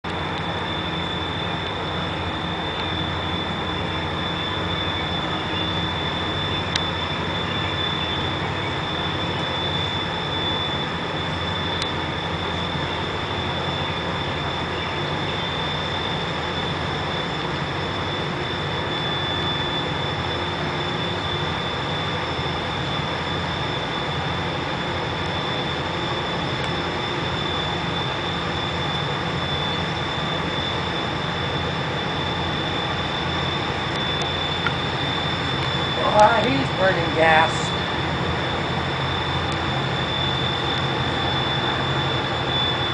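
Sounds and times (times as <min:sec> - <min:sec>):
diesel engines droning: 0:00.0 - 0:42.9
thin steady high tone: 0:00.1 - 0:42.9.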